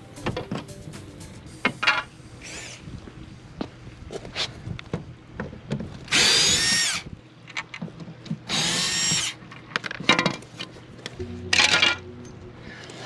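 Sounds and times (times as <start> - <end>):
power drill motor whining: 6.1 - 7.1, 8.5 - 9.4.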